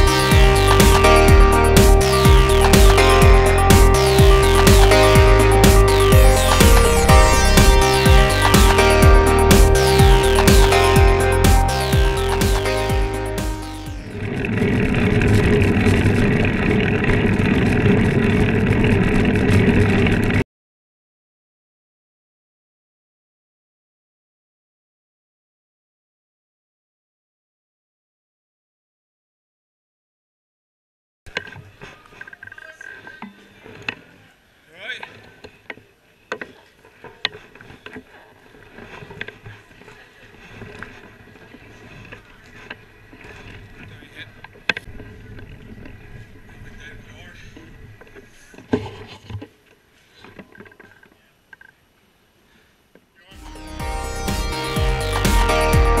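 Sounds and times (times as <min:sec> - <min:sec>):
low rumble: 0:00.0 - 0:20.3
bike tyre rumble: 0:14.0 - 0:20.4, 0:36.5 - 0:49.2.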